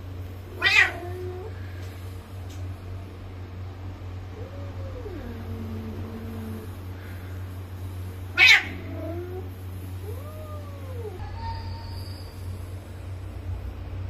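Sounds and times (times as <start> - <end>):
harsh cat cry: 0.5 - 1.5, 8.3 - 12.0
cats yowling: 0.5 - 1.6, 4.3 - 6.8, 8.3 - 12.7.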